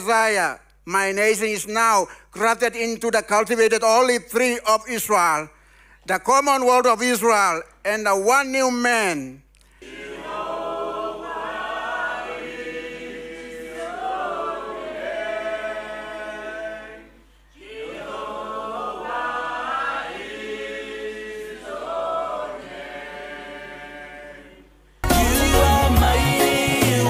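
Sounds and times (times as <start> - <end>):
group of singers unaccompanied: 9.8 - 27.0.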